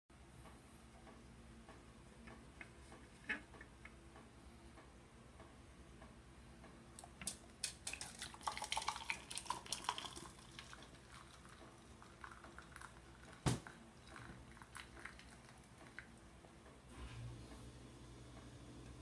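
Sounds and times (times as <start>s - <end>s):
metal can clicking and crackling: 7.2s - 9.9s.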